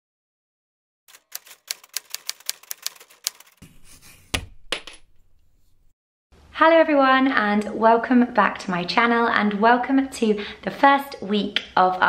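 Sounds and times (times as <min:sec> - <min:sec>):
typewriter key strikes: 0:01.1 - 0:03.6.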